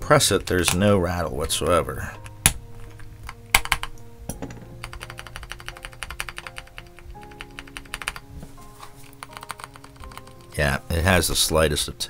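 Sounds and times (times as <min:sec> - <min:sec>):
background music: 0:00.0 - 0:12.0
mechanical keyboard keys clacking: 0:02.2 - 0:04.0, 0:04.8 - 0:08.2, 0:09.0 - 0:10.5.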